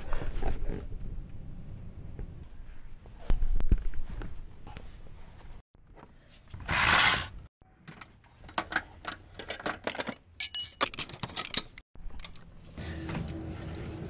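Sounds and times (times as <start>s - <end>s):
wrenches and sockets clinking: 8.4s - 12.4s.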